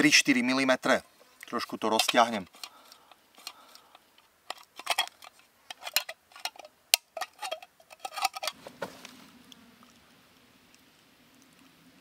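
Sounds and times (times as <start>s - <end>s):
sheet metal clicking and scraping: 3.4s - 8.6s.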